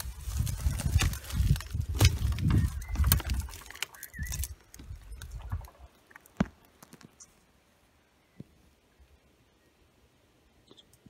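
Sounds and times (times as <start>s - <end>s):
wind buffeting microphone: 0.0s - 5.9s.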